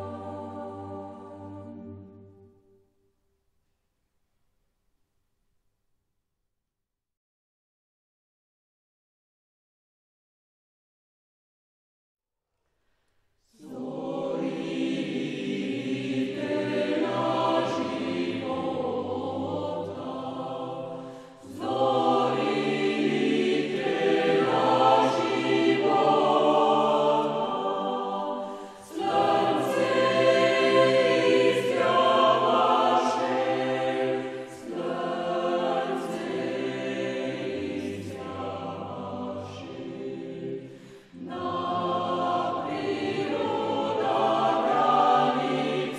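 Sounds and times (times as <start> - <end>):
choir singing held chords: 0.0 - 2.8, 13.5 - 45.9
singers breathing: 21.0 - 21.5, 28.4 - 28.9, 40.6 - 41.2.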